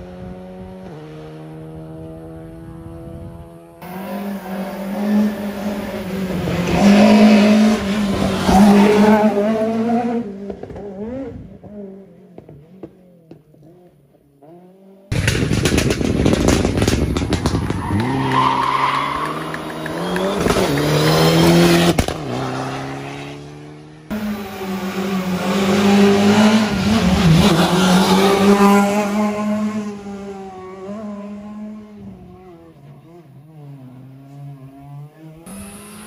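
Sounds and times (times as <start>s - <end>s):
rally car engine revving past: 0.1s - 12.0s, 16.6s - 36.0s
faint engine: 19.4s - 36.0s.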